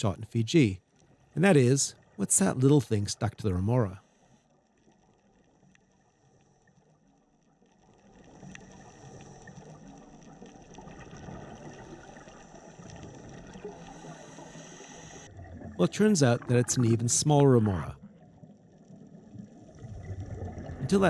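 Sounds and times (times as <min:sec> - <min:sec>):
underwater water rush: 0:08.1 - 0:21.0.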